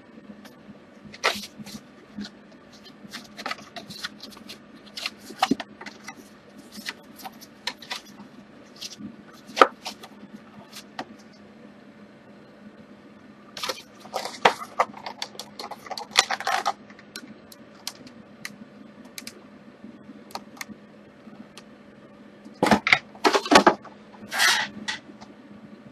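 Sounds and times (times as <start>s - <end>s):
faint steady hum: 0.0s - 25.9s
paper crinkling and rustling: 1.1s - 11.0s, 13.6s - 16.8s.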